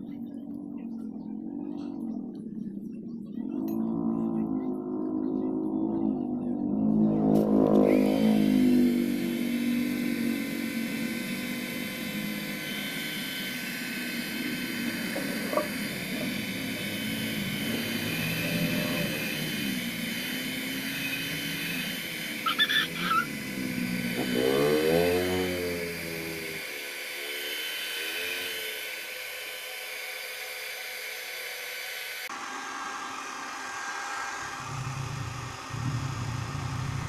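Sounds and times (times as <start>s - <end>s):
hair dryer running: 7.4s - 37.0s
high-pitched chirps: 22.4s - 23.3s.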